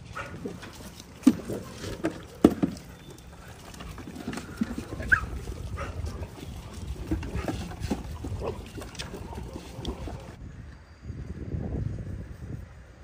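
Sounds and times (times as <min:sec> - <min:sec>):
dogs scuffling: 0:00.2 - 0:10.4
plastic bowl knocking on ground: 0:01.2 - 0:02.8
dogs whining and yelping: 0:01.5 - 0:10.4.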